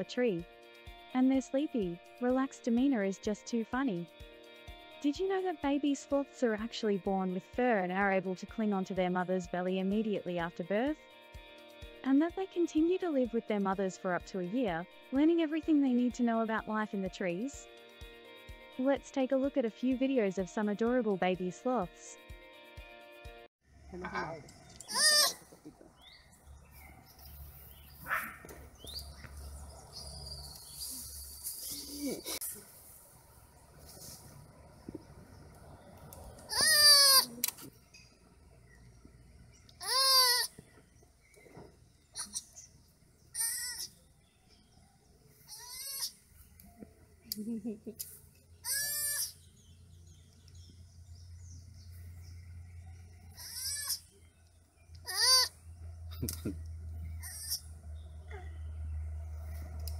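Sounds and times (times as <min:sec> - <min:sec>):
sloth squeaky cries: 0:24.8 - 0:25.5, 0:36.5 - 0:37.5, 0:39.8 - 0:40.6, 0:42.2 - 0:42.6, 0:43.3 - 0:44.0, 0:45.4 - 0:46.2, 0:48.6 - 0:49.4, 0:53.3 - 0:54.2, 0:55.0 - 0:55.6, 0:57.2 - 0:57.7
high rising chirps: 0:26.0 - 0:32.6.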